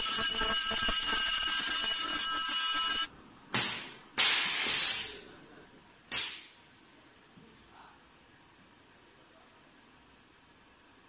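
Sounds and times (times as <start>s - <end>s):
machine high-pitched whine: 0.0s - 3.2s
compressed air hissing: 3.6s - 5.2s, 6.1s - 6.6s.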